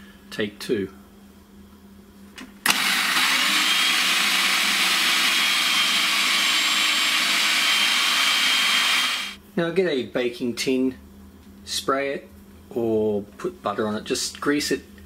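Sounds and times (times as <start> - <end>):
food processor switch click: 2.7 - 5.2
food processor running: 2.7 - 9.4.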